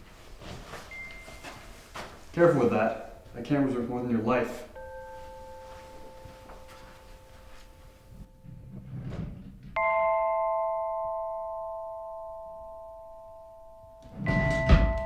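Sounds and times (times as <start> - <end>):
bell-like chime ringing: 4.8 - 8.4, 9.8 - 15.0.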